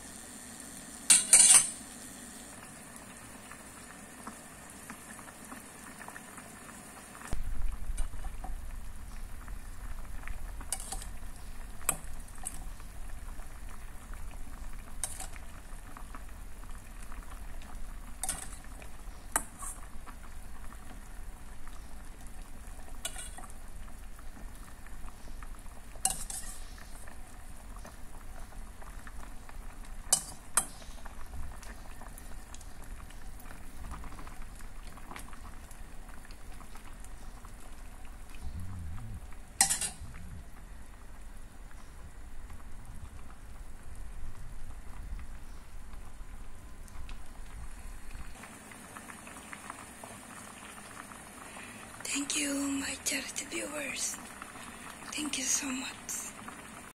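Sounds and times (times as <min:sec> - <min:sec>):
soup bubbling in a pot: 0:00.0 - 0:56.9
metal spoon clinking on pot: 0:01.1 - 0:01.7, 0:39.6 - 0:40.0
low steady rumble: 0:07.4 - 0:19.0, 0:37.5 - 0:48.4.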